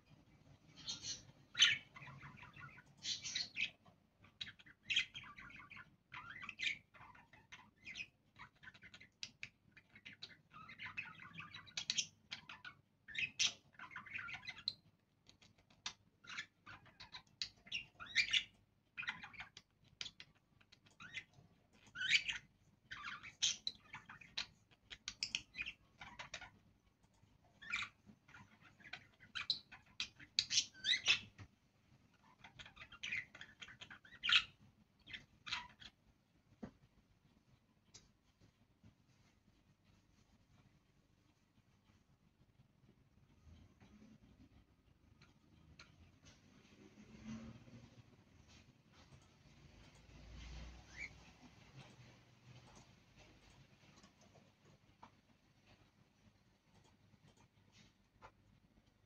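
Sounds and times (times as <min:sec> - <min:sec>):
budgerigars chirping: 0:00.7 - 0:26.6, 0:27.6 - 0:31.5, 0:32.1 - 0:36.0, 0:50.5 - 0:52.2.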